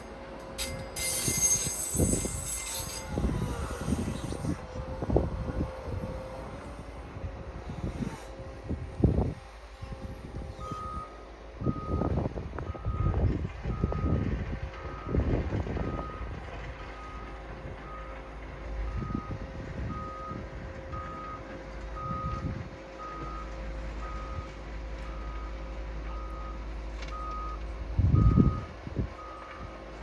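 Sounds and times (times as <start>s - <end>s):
diesel engine running: 0.0s - 30.0s
low rumble: 2.1s - 21.3s
excavator warning beeper: 10.5s - 14.2s, 14.8s - 29.8s.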